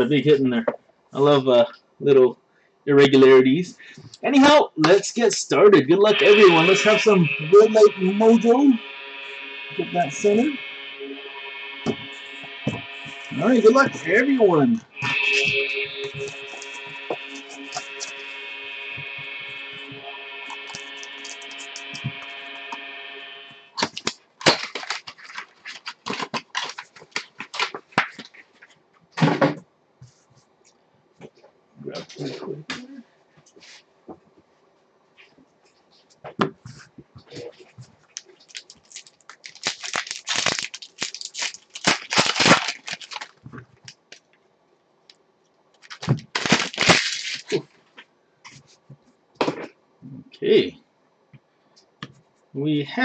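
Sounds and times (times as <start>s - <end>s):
held chord of background music: 5.5s - 23.6s
foil wrapper crinkling and tearing: 20.6s - 22.3s, 23.8s - 28.4s, 38.1s - 44.2s, 45.8s - 47.6s.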